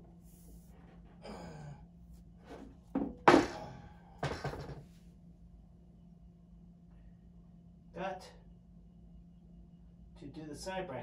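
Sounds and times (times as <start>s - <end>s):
metal parts knocking and clunking: 4.2s - 4.8s.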